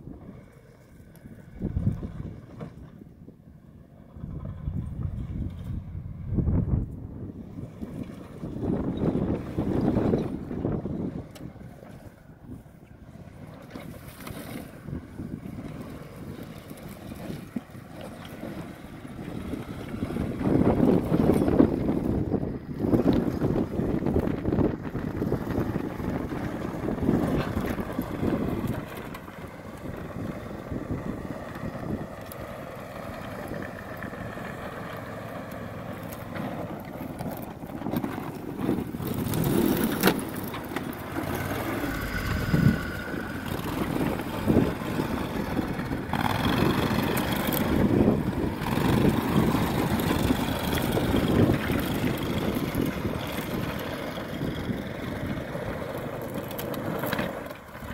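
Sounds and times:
vehicle engine under load: 0.0s - 57.9s.

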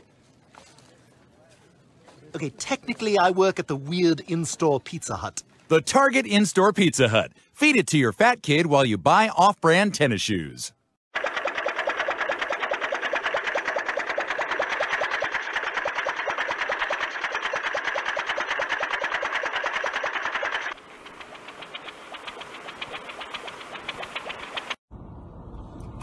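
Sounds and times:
small engine chugging: 11.1s - 24.8s.

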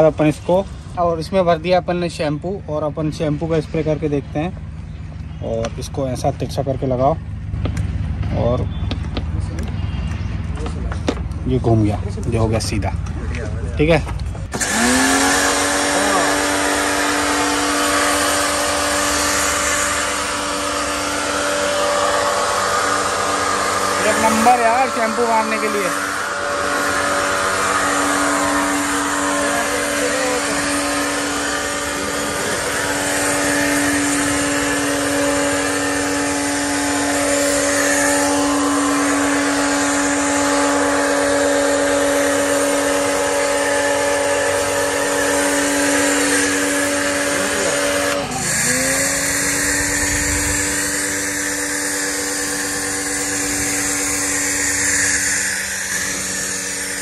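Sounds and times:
pressure washer motor hum: 0.0s - 57.0s.

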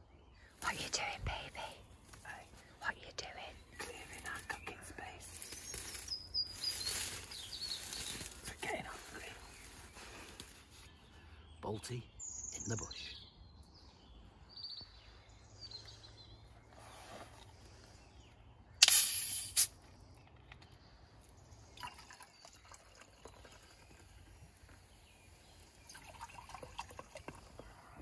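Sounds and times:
carbonation gas hissing: 18.8s - 19.7s
cola pouring into metal mug: 21.7s - 24.7s, 25.7s - 27.7s.

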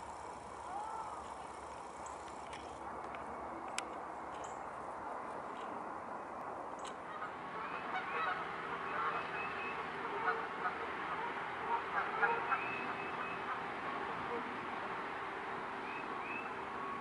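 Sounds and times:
birds calling: 6.8s - 13.7s.

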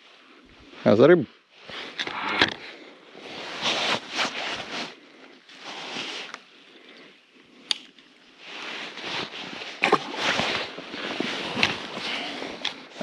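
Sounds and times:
rustling handling noises: 8.4s - 13.0s.

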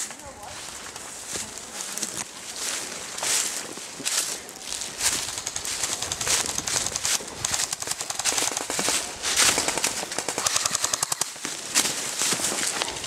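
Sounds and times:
footsteps in dry leaves: 0.0s - 13.0s
airsoft rifles firing bursts: 5.0s - 11.3s.

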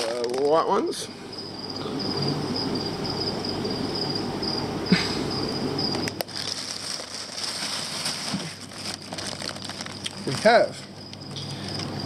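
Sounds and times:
plastic bags rustling: 0.0s - 0.9s, 6.1s - 10.8s
steady low hum: 0.0s - 12.0s.

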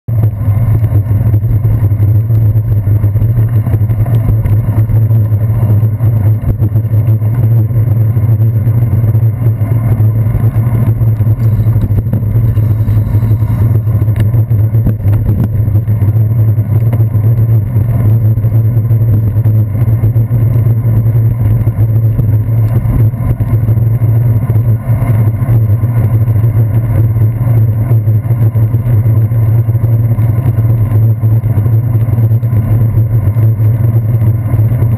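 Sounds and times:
road vibration rumble: 0.0s - 34.9s
wind on camera housing: 0.4s - 25.7s.

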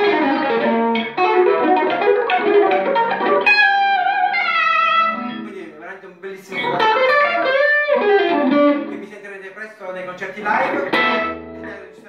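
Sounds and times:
overdriven electric guitar: 0.0s - 5.6s, 6.5s - 9.0s, 10.6s - 11.9s.

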